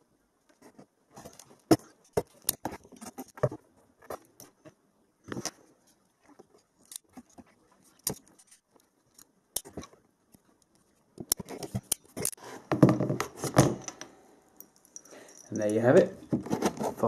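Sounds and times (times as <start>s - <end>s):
wires and terminals clicking: 6.7s - 12.4s.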